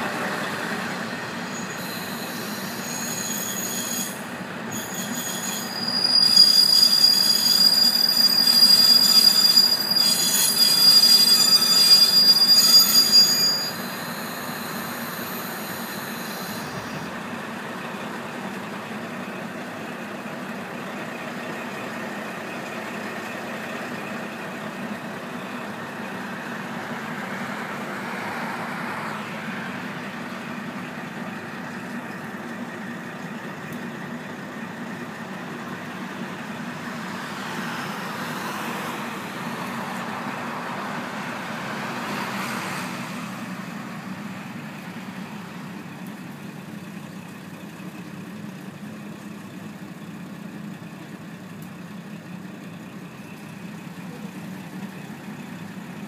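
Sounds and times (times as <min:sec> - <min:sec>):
diesel railcar engine idling: 0:00.0 - 0:56.0
road vehicle passing: 0:24.1 - 0:33.7, 0:34.5 - 0:46.0.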